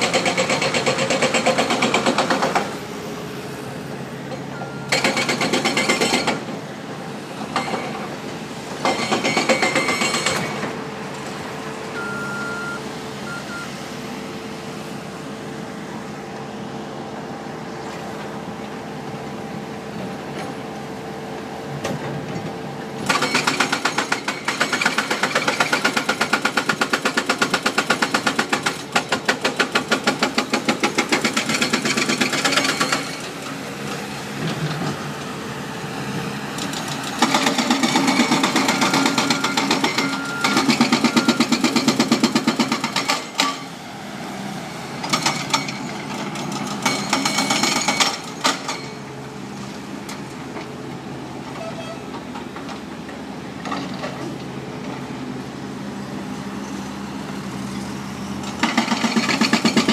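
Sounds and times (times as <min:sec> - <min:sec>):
hydraulic breaker pounding concrete: 0:00.0 - 0:02.8, 0:04.9 - 0:06.6, 0:07.4 - 0:10.8, 0:23.0 - 0:33.4, 0:36.6 - 0:43.7, 0:45.0 - 0:49.0, 0:58.5 - 0:59.9.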